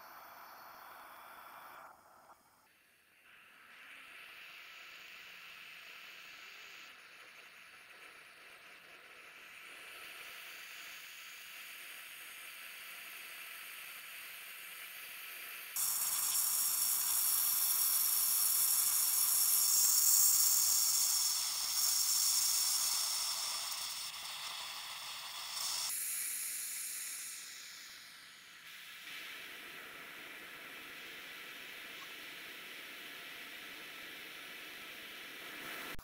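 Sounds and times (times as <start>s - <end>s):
torch flame hissing: 3.2s - 36.0s.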